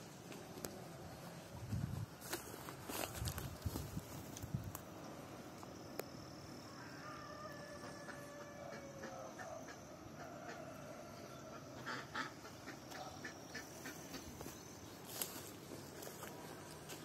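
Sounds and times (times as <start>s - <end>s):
faint poultry calling: 6.6s - 15.5s.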